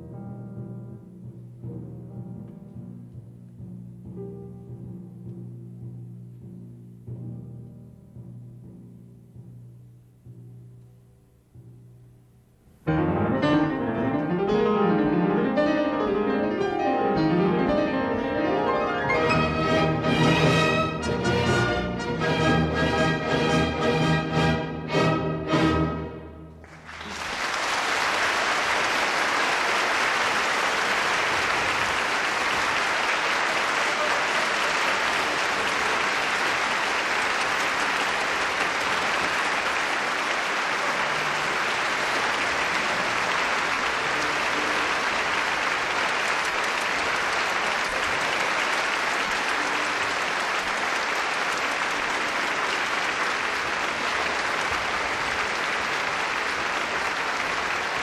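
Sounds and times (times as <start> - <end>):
concert audience applauding: 26.5 - 58.0.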